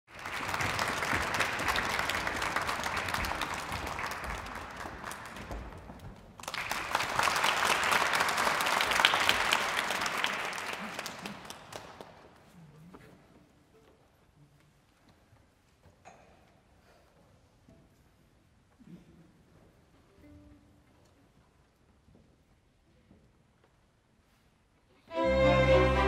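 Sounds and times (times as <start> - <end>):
audience applauding: 0.0 - 12.3.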